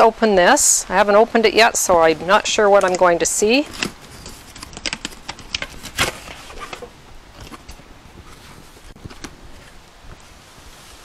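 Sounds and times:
cardboard box packaging clicks and rustles: 2.8 - 9.8.

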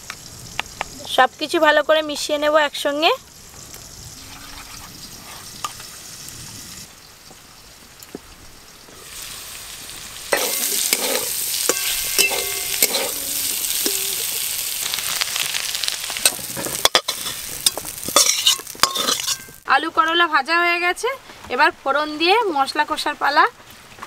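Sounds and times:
vegetables sizzling in a wok: 0.0 - 23.4
spatula scraping and clinking pan: 10.3 - 14.5, 16.2 - 19.6.

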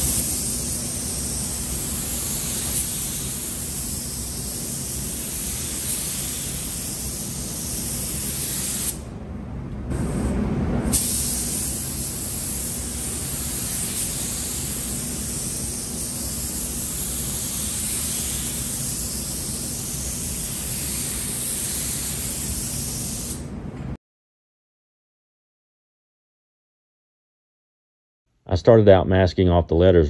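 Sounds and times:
paint spray gun hissing: 0.0 - 9.0, 10.9 - 23.4
steady low hum: 0.0 - 24.0.

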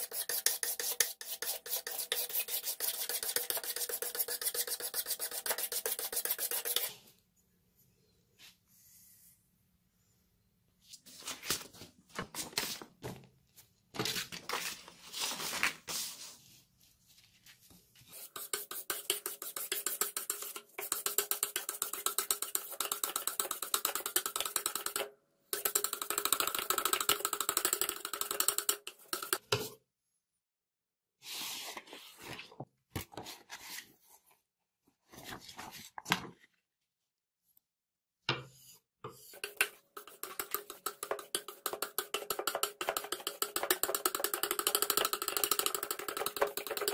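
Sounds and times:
knife scraping on sharpening stone: 0.0 - 6.9.

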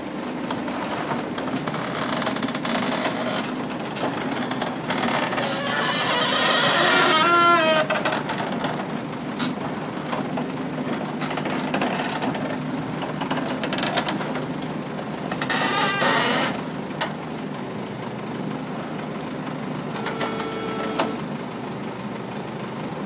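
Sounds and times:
diesel engine idling: 16.6 - 23.0.

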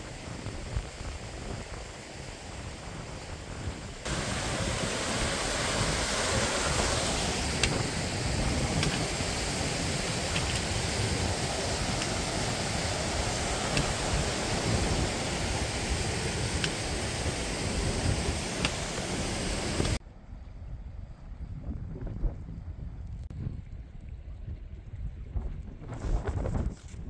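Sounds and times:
water rushing over boulders: 0.0 - 20.0.

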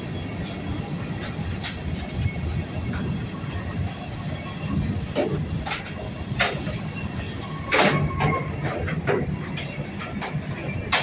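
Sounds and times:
train wheels rumbling on rail: 0.0 - 11.0
metallic knocks and clanks: 5.1 - 11.0.

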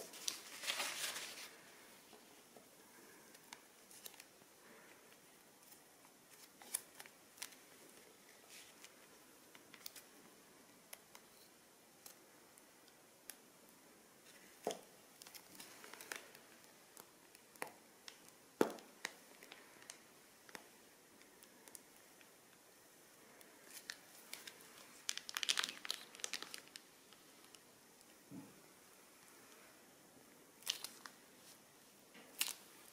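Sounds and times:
plastic bags crinkling: 0.0 - 1.7, 23.6 - 27.6, 30.6 - 31.2, 32.3 - 32.9.

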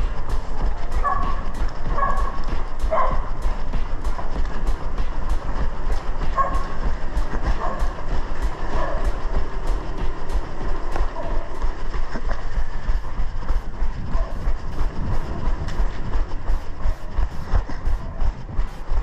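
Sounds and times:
running footsteps on pavement: 0.0 - 19.0
wind rumbling on microphone: 0.0 - 19.0.

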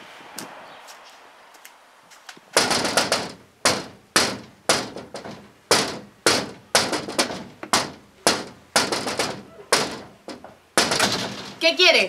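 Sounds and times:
knocking on a door: 2.6 - 11.6.

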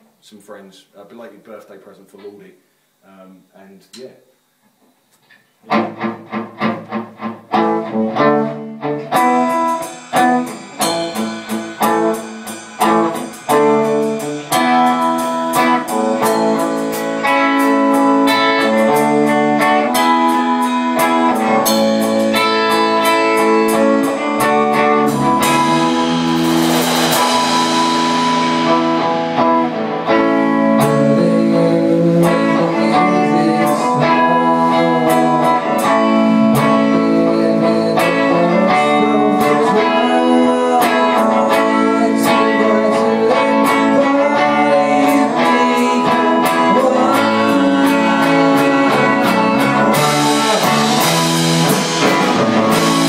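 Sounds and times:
rock band playing: 5.7 - 53.0
cymbal crash: 9.1 - 17.4, 25.0 - 30.0.

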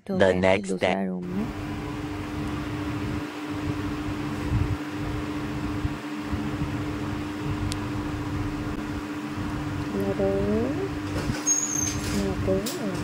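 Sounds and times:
mechanical fan hum: 0.0 - 13.0
low rumble: 1.3 - 11.3
faint high tick: 7.6 - 7.8.

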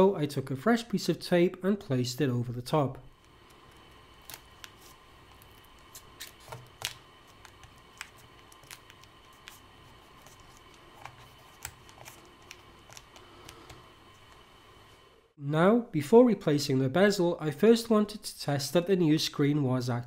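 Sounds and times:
faint steady hum: 0.0 - 20.0
adhesive tape crinkling: 3.2 - 14.4.

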